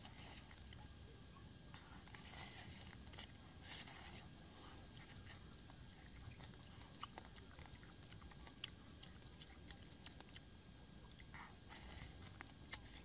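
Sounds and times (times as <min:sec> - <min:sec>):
insect chirping: 0:00.0 - 0:13.0.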